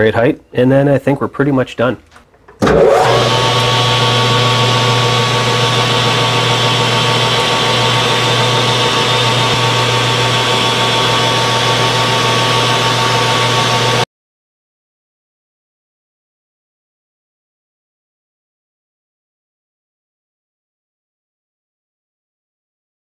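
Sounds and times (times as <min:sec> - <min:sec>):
lathe tool cutting metal: 0:02.6 - 0:14.0
metal lathe humming and whining: 0:02.6 - 0:14.0.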